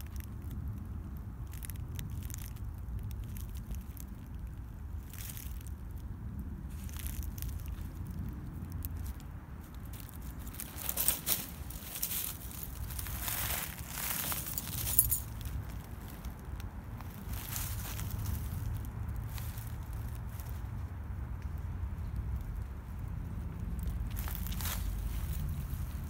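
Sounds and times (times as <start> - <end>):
dry leaves crunching underfoot: 0.0 - 26.0
steady low rumble: 0.0 - 26.0.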